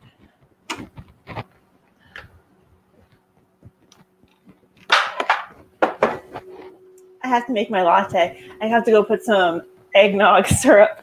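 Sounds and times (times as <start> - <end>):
faint appliance hum: 0.0 - 11.0
kitchen items knocking and clicking: 4.8 - 6.5.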